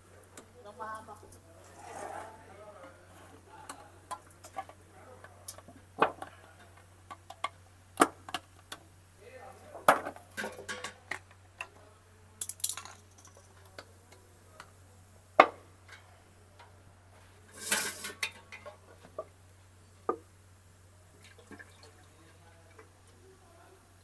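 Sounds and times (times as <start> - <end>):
scraping rustle: 1.6 - 2.4.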